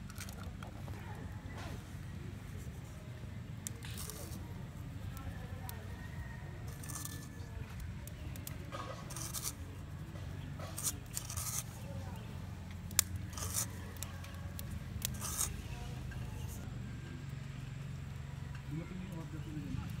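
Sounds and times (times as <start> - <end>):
steady low background hum: 0.0 - 20.0
gritty rustles of sprinkled salt: 1.8 - 16.6.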